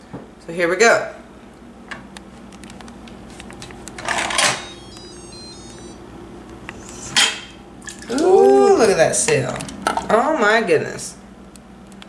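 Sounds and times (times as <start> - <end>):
electronic beep melody: 4.5 - 6.0
low hum: 4.5 - 8.2.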